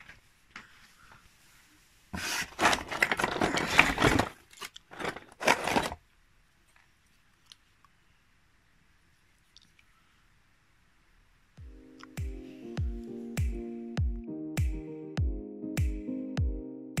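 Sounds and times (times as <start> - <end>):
scraping and crunching of metal scraps: 2.1 - 6.0
rustling and clinking: 2.5 - 6.0.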